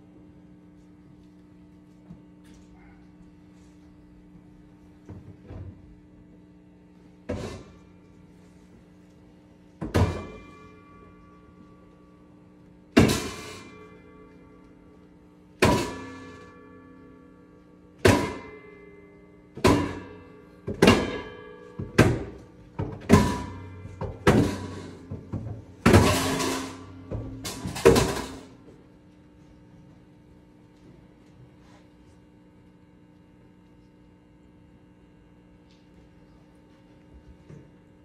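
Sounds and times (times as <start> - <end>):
sharp ringing percussion hits: 15.6 - 22.4, 25.8 - 28.6.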